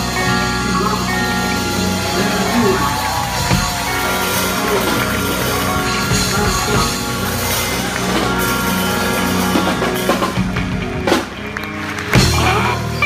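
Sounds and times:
drum kit: 0.0 - 13.0
electric bass: 0.0 - 13.0
electric guitar: 0.0 - 13.0
saxophone: 0.0 - 13.0.

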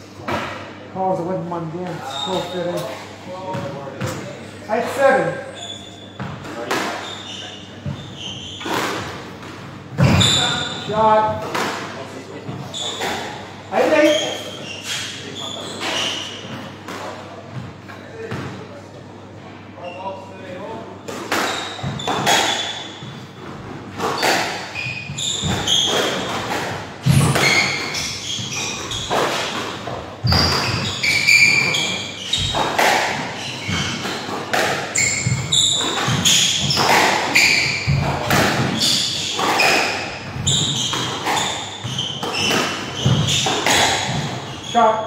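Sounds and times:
shoes squeaking on wooden floor: 1.9 - 4.2, 5.4 - 9.4, 10.0 - 11.4, 12.5 - 16.7, 21.3 - 45.0
squash ball impacts: 8.6 - 10.7, 21.1 - 44.6.

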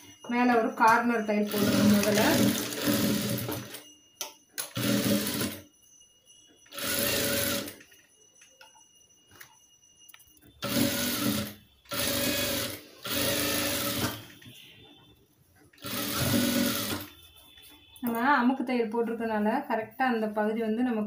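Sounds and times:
sewing machine stitching: 1.4 - 3.8, 4.6 - 5.6, 6.7 - 7.8, 10.6 - 14.2, 15.8 - 17.1.

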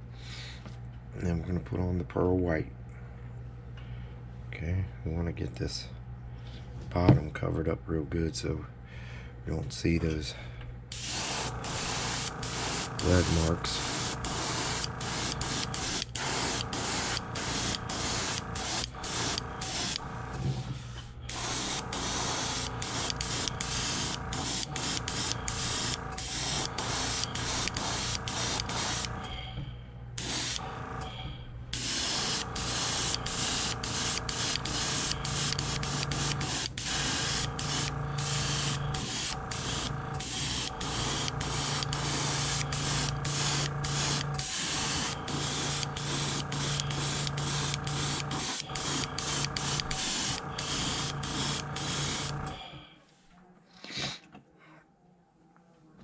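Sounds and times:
steady low hum: 0.0 - 53.0
airbrush spraying hiss: 10.9 - 20.0, 21.3 - 29.2, 30.2 - 30.8, 31.8 - 52.6.

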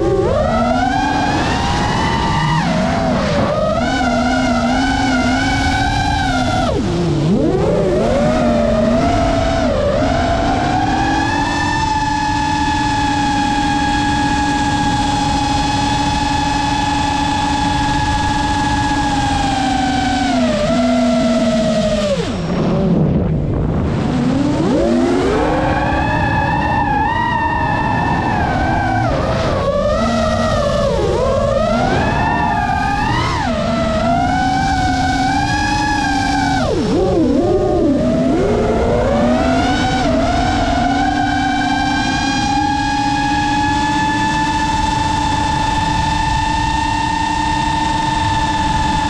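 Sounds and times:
drone propellers whining: 0.0 - 49.0
rush of air noise: 21.2 - 37.4.

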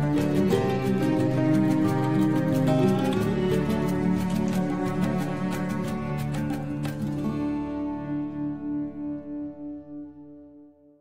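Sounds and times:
instrumental music with beat: 0.0 - 8.4.

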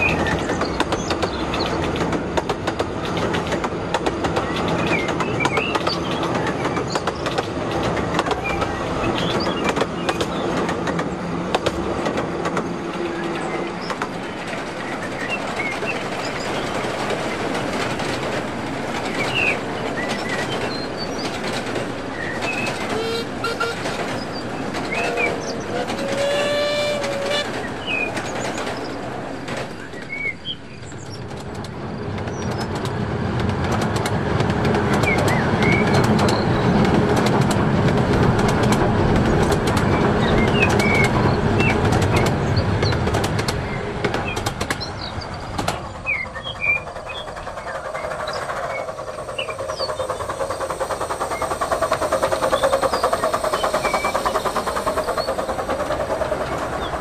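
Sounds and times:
model trains rumbling: 0.0 - 57.0
passing train hum: 0.0 - 57.0
wheels clicking over rail joints: 0.0 - 57.0.

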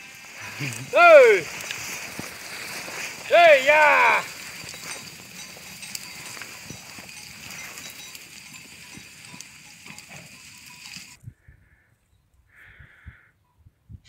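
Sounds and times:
hooves trampling through brush: 0.0 - 11.2
sheep bells clinking: 0.0 - 11.2.

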